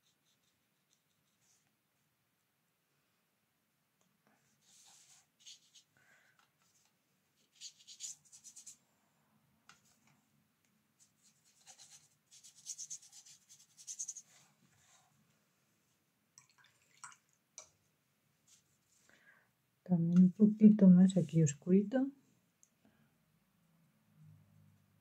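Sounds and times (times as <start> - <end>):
brush stroking paper: 0.0 - 1.7, 4.6 - 5.9, 6.6 - 8.8, 11.0 - 15.1.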